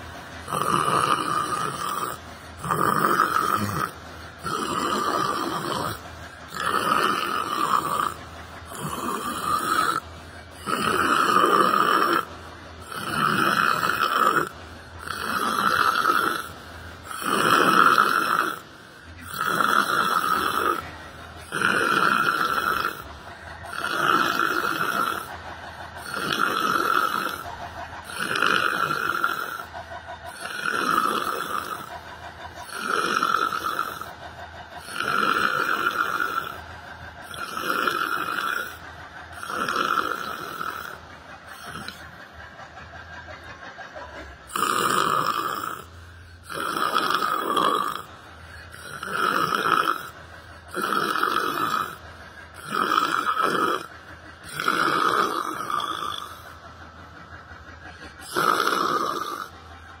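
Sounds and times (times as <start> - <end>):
man imitating snores: 0.0 - 34.2, 34.8 - 36.6, 37.2 - 42.1, 44.4 - 56.6, 58.1 - 59.6.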